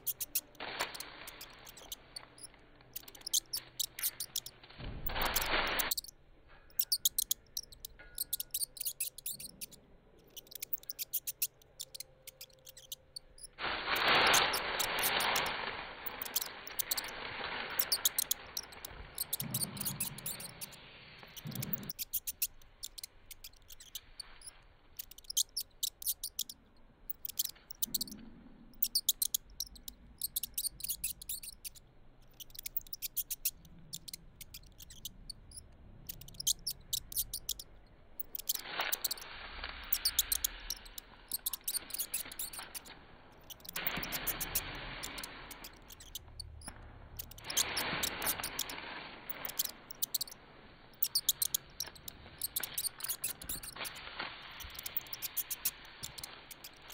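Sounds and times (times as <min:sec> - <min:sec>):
rat squeaking: 0:00.0 - 0:56.9
dry petals rustling: 0:13.6 - 0:19.6.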